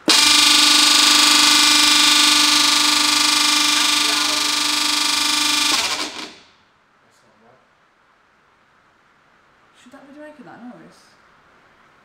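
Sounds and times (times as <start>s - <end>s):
mixer motor whining and hissing: 0.0s - 6.5s.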